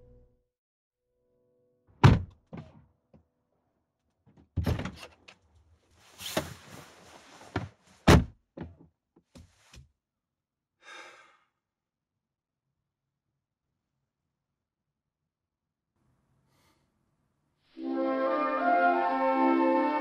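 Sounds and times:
clothes rustling on seat: 0:05.9 - 0:08.1.

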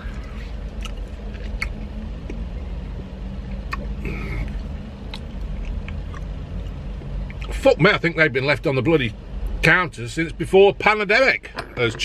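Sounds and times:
chewing: 0:00.2 - 0:02.4, 0:03.7 - 0:07.5.

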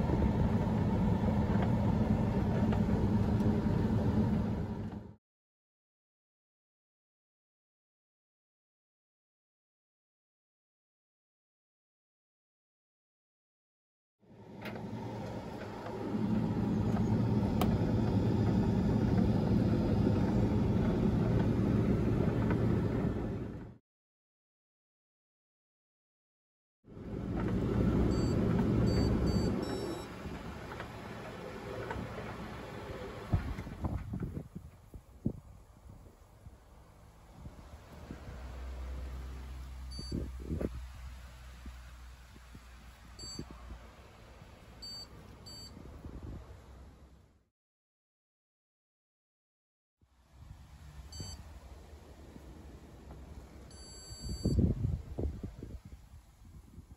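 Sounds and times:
tumble dryer humming: 0:00.0 - 0:05.2, 0:14.3 - 0:23.8, 0:26.9 - 0:34.3
short high beeps: 0:28.1 - 0:30.1, 0:39.9 - 0:40.2, 0:44.8 - 0:45.7, 0:51.1 - 0:51.4, 0:53.7 - 0:54.6.

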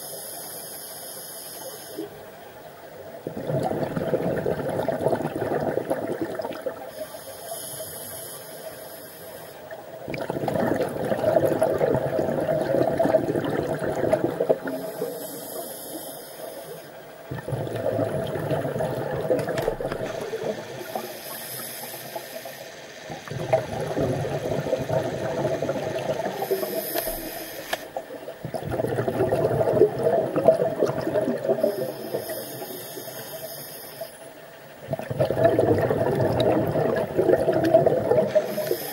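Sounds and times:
regulator inhale hiss: 0:00.0 - 0:02.3, 0:06.9 - 0:09.8, 0:14.7 - 0:17.0, 0:19.8 - 0:23.1, 0:26.2 - 0:28.0, 0:31.5 - 0:34.5, 0:38.3 - 0:38.9
exhaled bubbles rushing: 0:03.2 - 0:06.9, 0:10.0 - 0:15.1, 0:17.3 - 0:21.1, 0:23.1 - 0:27.3, 0:27.9 - 0:32.3, 0:34.8 - 0:38.8.

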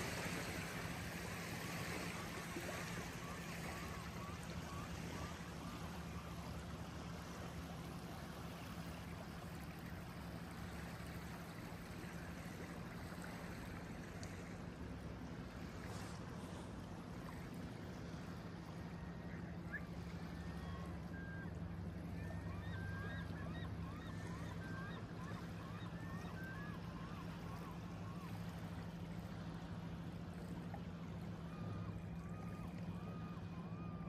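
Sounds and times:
water lapping at gravel shore: 0:00.0 - 0:22.2.

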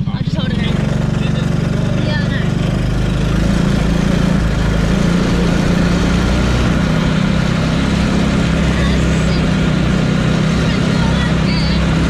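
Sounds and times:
vehicle engine driving: 0:00.0 - 0:12.0.

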